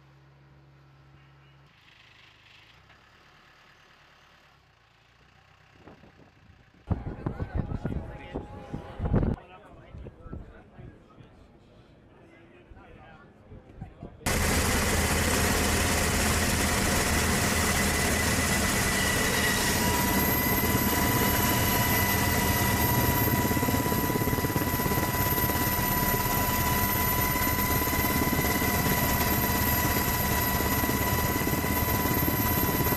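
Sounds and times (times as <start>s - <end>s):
high engine whines: 14.3s - 32.9s
jet engines rumbling: 14.3s - 32.9s.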